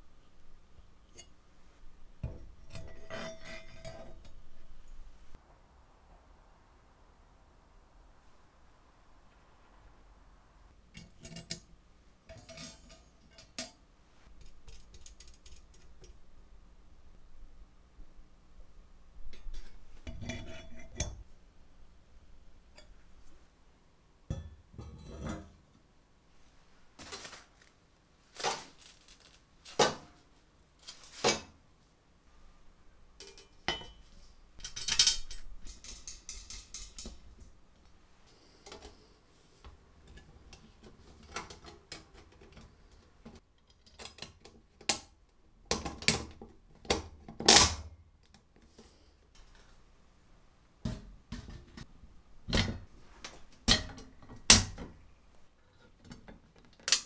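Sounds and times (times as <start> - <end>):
metal parts clinking and knocking: 34.6 - 37.2.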